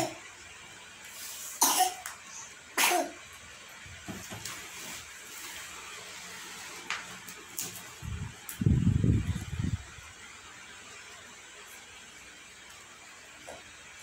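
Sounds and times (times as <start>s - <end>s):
person coughing: 1.6s - 2.0s, 2.8s - 3.2s.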